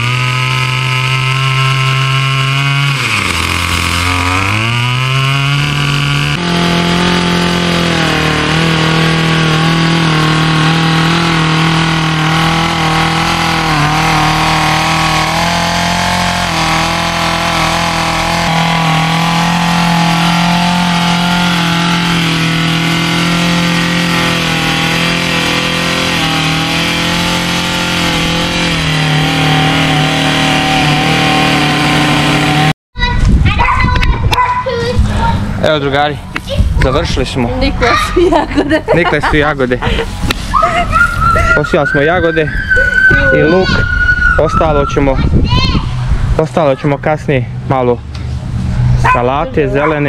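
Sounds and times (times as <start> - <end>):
tines digging into soil: 0.0 - 32.7
tiller engine running: 0.0 - 32.8, 34.8 - 42.2.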